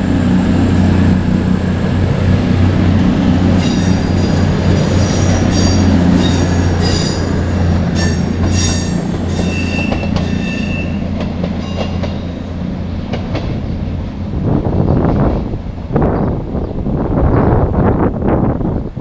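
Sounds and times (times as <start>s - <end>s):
diesel train drone: 0.0s - 19.0s
high wheel squeal: 3.5s - 12.0s
wind buffeting microphone: 11.1s - 19.0s.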